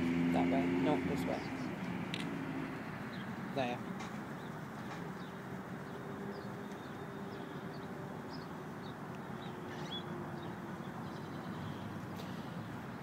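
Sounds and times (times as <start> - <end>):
traffic hum: 0.0 - 13.0
faint high bird chirps: 4.8 - 12.6.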